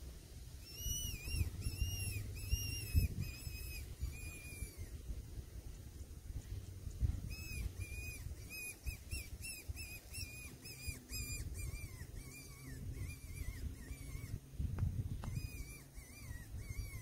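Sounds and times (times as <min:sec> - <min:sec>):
wind rumble on microphone: 0:00.0 - 0:17.0
fox whistle squeaks: 0:00.6 - 0:05.0, 0:07.2 - 0:14.4, 0:15.2 - 0:17.0.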